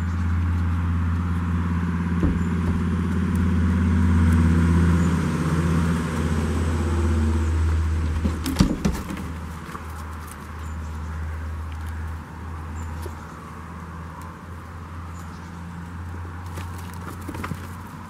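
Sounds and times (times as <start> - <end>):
low engine hum: 0.0 - 18.0
sharp knocks: 2.2 - 2.9, 8.1 - 9.4
rustles: 7.6 - 18.0.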